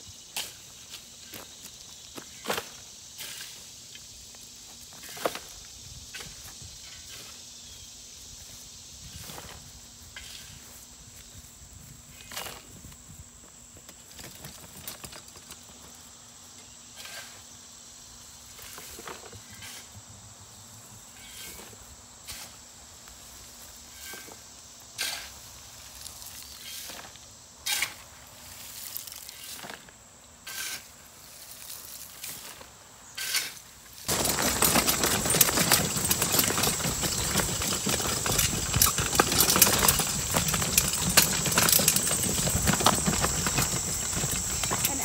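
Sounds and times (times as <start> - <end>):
cart rattling across grass: 8.2 - 13.2, 13.8 - 16.1, 33.9 - 45.0
shovel scooping wood chips: 25.0 - 45.0
wood chips tipped into plastic cart: 34.1 - 44.0.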